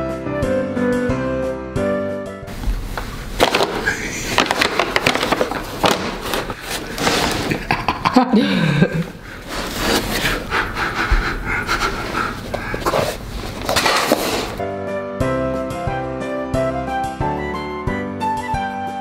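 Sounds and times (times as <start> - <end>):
paper bag crinkling: 2.5 - 7.7, 12.8 - 14.6
man laughing breathily: 3.8 - 4.5, 6.3 - 13.3.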